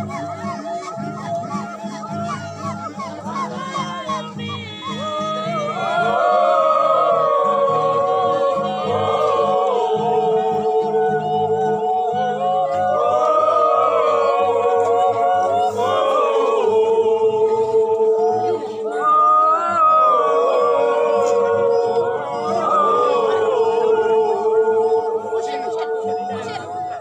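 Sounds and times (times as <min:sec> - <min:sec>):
group chanting without instruments: 0:05.6 - 0:27.0.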